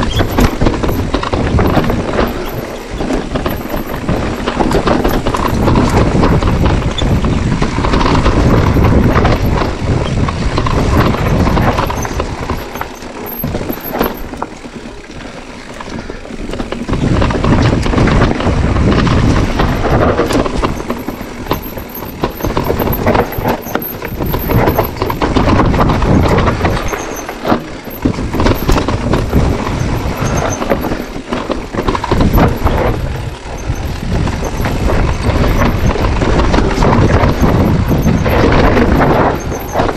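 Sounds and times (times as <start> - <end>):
bike rattling: 0.0 - 39.9
wind buffeting microphone: 0.0 - 39.9.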